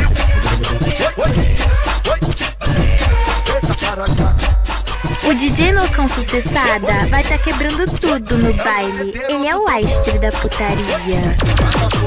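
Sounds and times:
heavy pounding bass drum: 0.0s - 8.6s, 9.8s - 12.0s
hi-hats: 0.0s - 8.6s.

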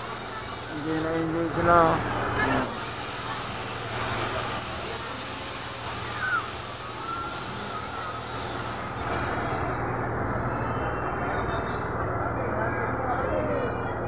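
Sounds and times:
air hissing: 2.6s - 9.1s.

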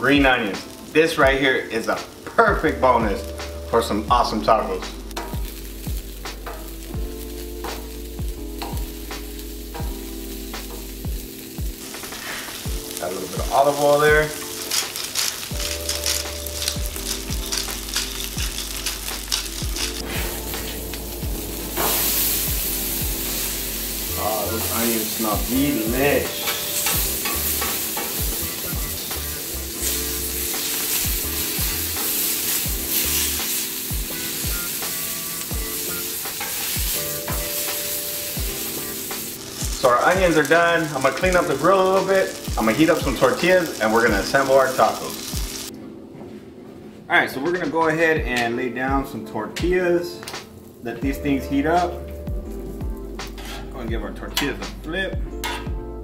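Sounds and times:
onions sizzling on a griddle: 0.0s - 45.7s, 50.2s - 53.8s, 55.4s - 55.8s
background music with low beat: 0.0s - 56.0s
metal spatula scraping griddle: 14.3s - 20.9s, 24.5s - 28.7s, 36.2s - 39.2s, 53.2s - 53.8s, 55.4s - 55.7s.

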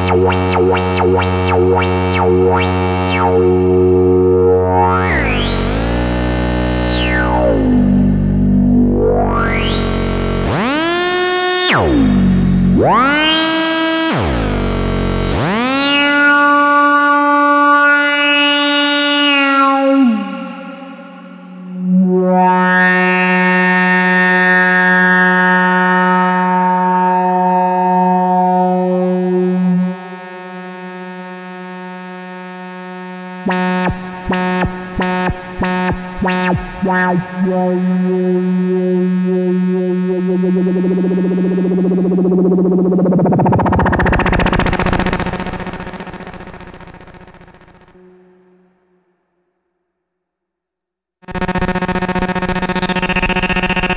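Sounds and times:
buzzy synthesizer swooping pitch: 0.0s - 16.8s, 32.8s - 48.4s, 51.2s - 53.9s.

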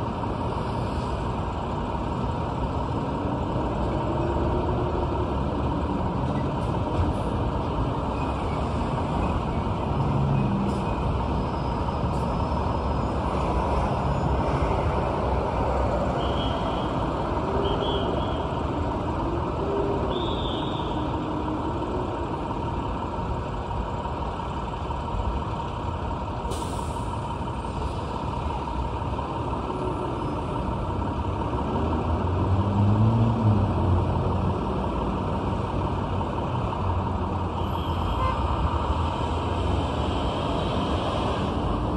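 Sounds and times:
passing cars and trucks hum: 0.0s - 41.9s
truck engine drone: 0.0s - 41.9s.

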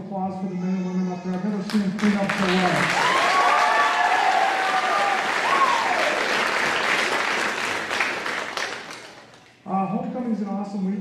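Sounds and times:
people cheering: 1.6s - 9.0s
audience applause: 2.0s - 9.4s.

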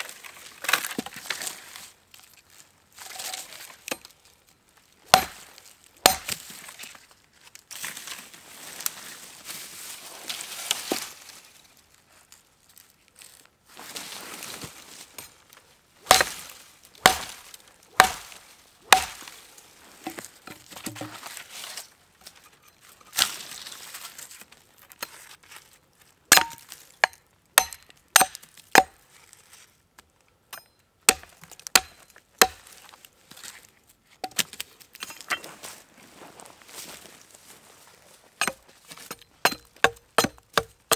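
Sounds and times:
axe chopping wood: 5.1s - 6.4s, 16.0s - 19.3s, 26.3s - 29.0s, 31.1s - 32.7s, 38.4s - 40.9s.

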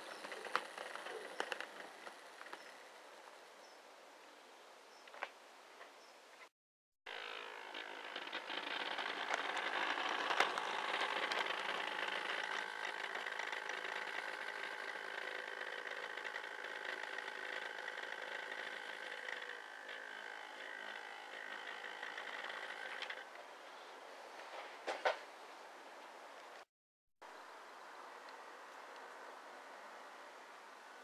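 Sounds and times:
model train motor whir: 0.0s - 3.0s, 7.1s - 23.3s.

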